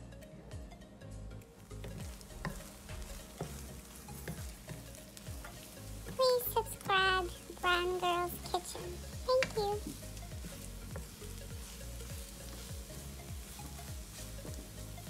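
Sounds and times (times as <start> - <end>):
background music with low beat: 0.0 - 15.0
eggs sizzling in frying pan: 1.5 - 15.0
spatula scraping and clicking on pan: 1.8 - 5.7
high-pitched voice: 6.1 - 10.0.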